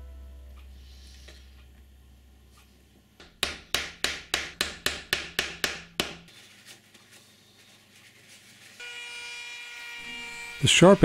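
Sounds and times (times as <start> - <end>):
hammer striking plywood: 3.2 - 6.3.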